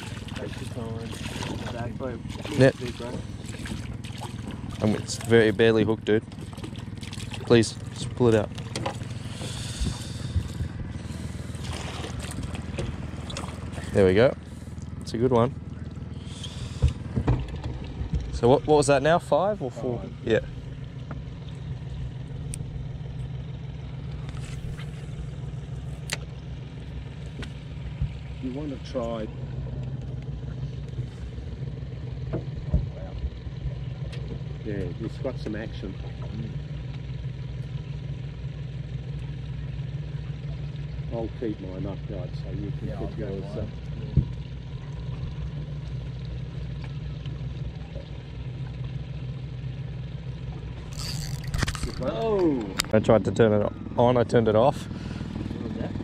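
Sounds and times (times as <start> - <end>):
boat motor humming: 0.0 - 56.0
fishing reel clicks: 50.9 - 52.0.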